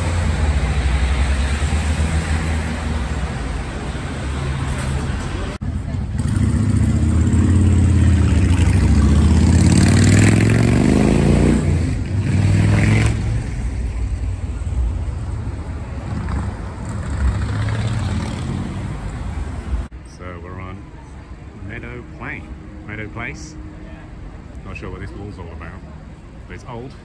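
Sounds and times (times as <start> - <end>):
vehicle engine passing: 0.0 - 19.9.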